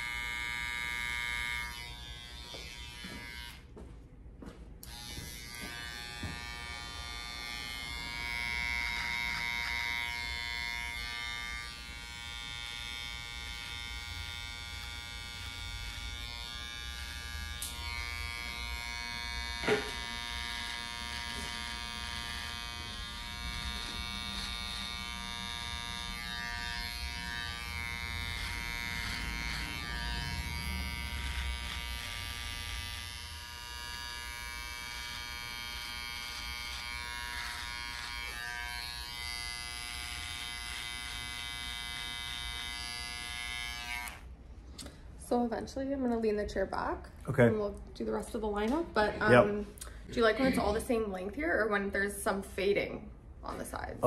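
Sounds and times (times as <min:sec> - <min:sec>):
beard trimmer buzzing: 0:00.0 - 0:03.6, 0:04.8 - 0:44.4.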